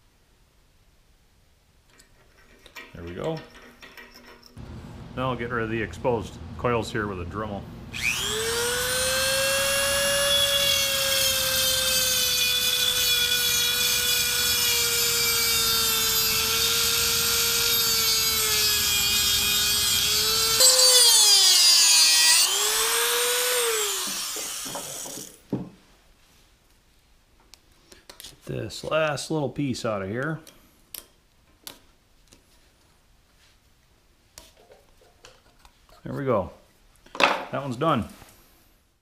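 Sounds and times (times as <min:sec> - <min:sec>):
rotary tool grinding metal: 0:08.0 - 0:25.4.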